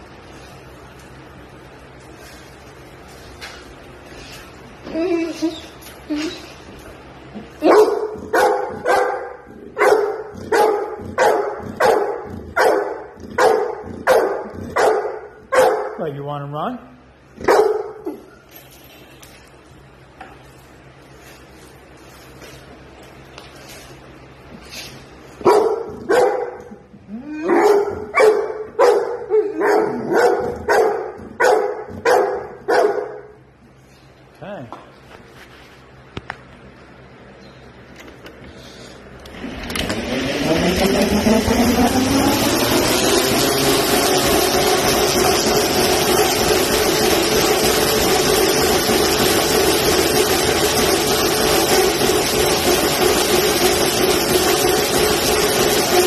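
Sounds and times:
treadmill motor and belt drone: 0.0s - 34.3s, 35.0s - 56.0s
large dog barking: 7.6s - 16.0s, 17.4s - 18.2s, 25.4s - 26.8s, 27.4s - 33.4s.

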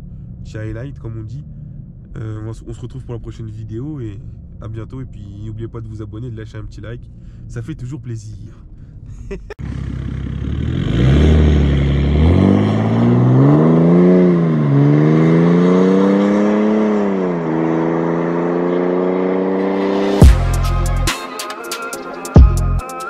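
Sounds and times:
car engine accelerating hard: 9.6s - 20.4s.

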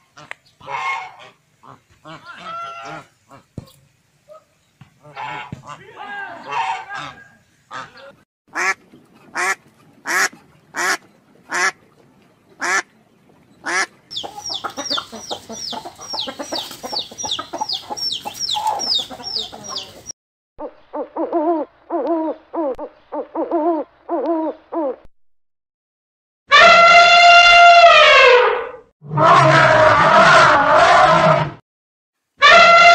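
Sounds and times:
birds honking: 0.1s - 3.5s, 5.0s - 8.8s, 13.6s - 20.1s
low rhythmic bird calls: 10.4s - 25.0s
high falling bird chirps: 14.1s - 20.1s.

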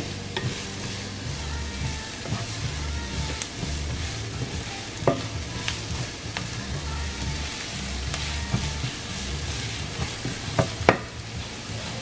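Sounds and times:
onions sizzling in oil: 0.0s - 12.0s
wooden spatula knocking pan: 1.8s - 6.5s, 8.1s - 11.5s.

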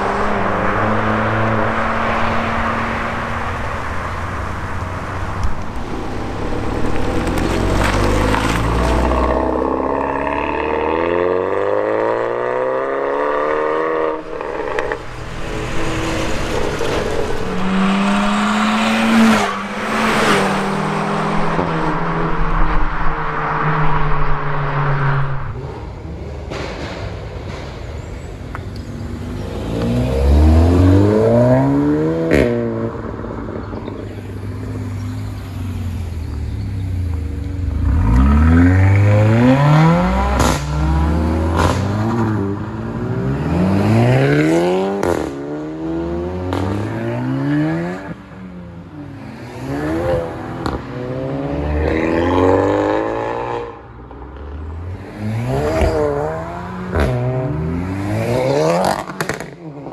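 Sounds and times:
car engines accelerating hard: 0.0s - 27.5s, 28.3s - 59.9s.

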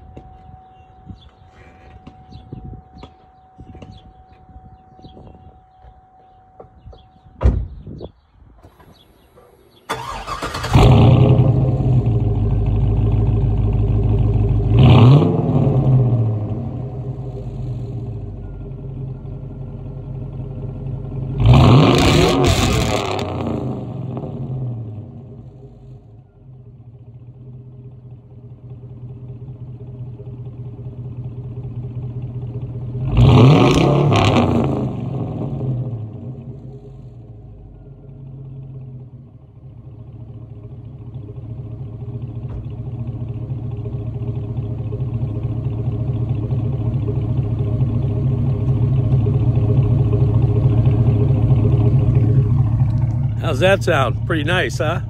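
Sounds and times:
car engine starting and revving: 8.7s - 18.2s, 21.1s - 25.7s, 32.3s - 37.4s, 41.8s - 55.0s.

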